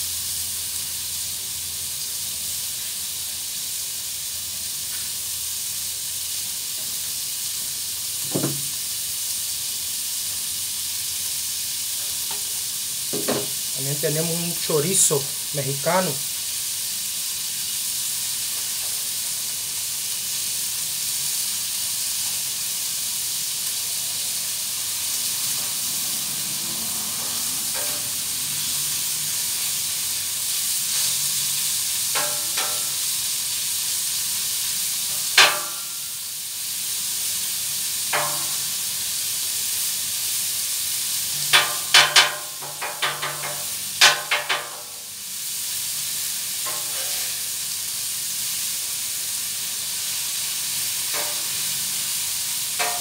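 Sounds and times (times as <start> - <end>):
meat sizzling on griddle: 0.0 - 53.0
metal spatula scraping griddle: 27.1 - 29.2, 32.1 - 33.0, 41.3 - 44.9, 46.6 - 47.6, 51.0 - 51.9, 52.8 - 53.0.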